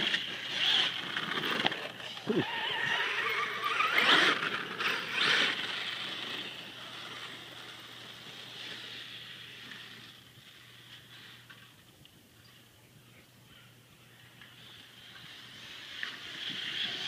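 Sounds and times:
electric motor whining: 0:00.0 - 0:10.3.

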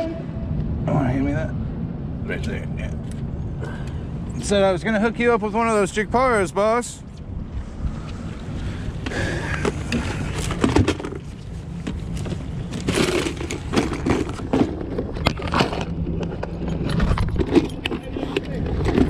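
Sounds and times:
low rumble: 0:00.0 - 0:06.5.

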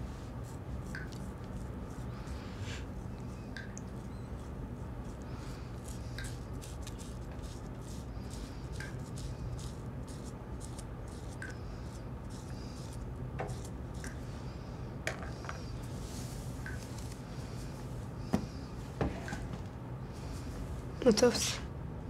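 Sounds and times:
steady low hum: 0:00.0 - 0:22.0
razor scraping stubble: 0:04.4 - 0:14.2.

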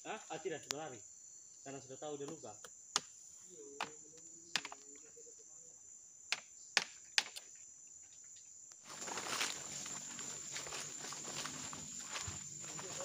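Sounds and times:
insects trilling: 0:00.0 - 0:13.0
footsteps in dry leaves: 0:08.8 - 0:13.0.

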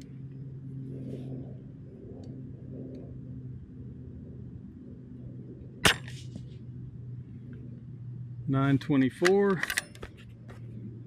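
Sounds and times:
low hum: 0:00.0 - 0:11.0
rifle shot: 0:05.8 - 0:06.3.

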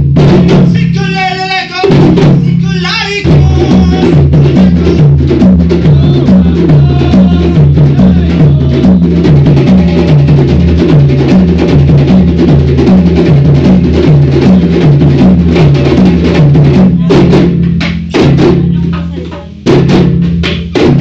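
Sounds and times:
djembe drums playing: 0:00.0 - 0:21.0.

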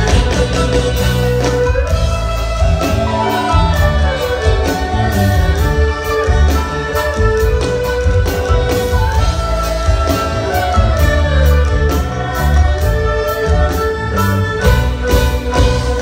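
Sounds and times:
bass: 0:00.0 - 0:16.0
bowed fiddles playing melody: 0:00.0 - 0:16.0
drum kit beat: 0:00.0 - 0:16.0.

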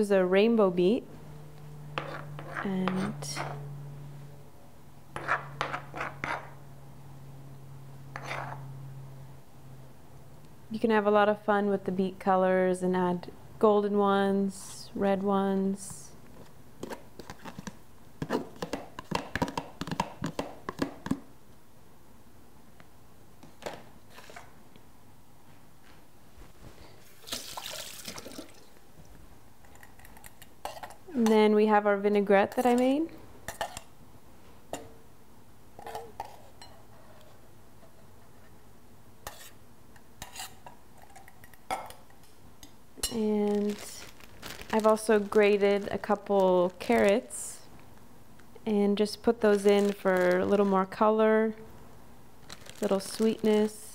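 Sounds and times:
spoon scraping plastic container: 0:05.2 - 0:06.5, 0:08.2 - 0:08.6.

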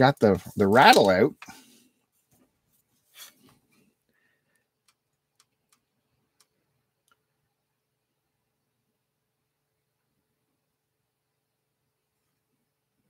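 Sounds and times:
soft rustle: 0:01.7 - 0:04.0
faint plastic clicks: 0:03.4 - 0:07.5.

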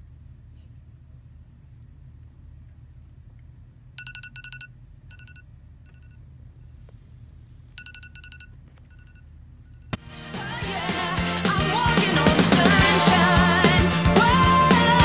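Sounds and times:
phone alarm beeping: 0:04.0 - 0:06.2, 0:07.8 - 0:09.9.

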